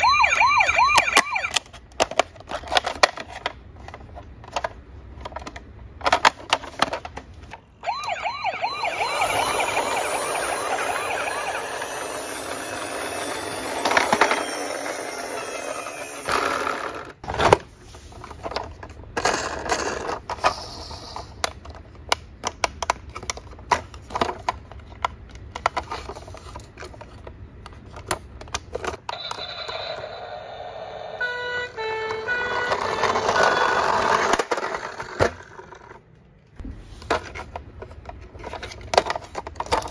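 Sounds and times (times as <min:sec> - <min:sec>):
toy siren wailing: 0:00.0 - 0:01.6, 0:07.8 - 0:16.6, 0:29.1 - 0:34.1
plastic toys clicking: 0:00.9 - 0:07.6, 0:18.4 - 0:29.8, 0:37.2 - 0:39.9.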